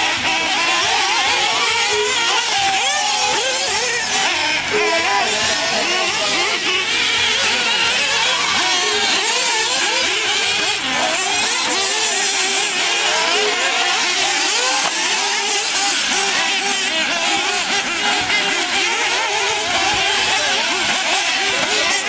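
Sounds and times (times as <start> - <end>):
small nitro engines revving: 0.0 - 22.0.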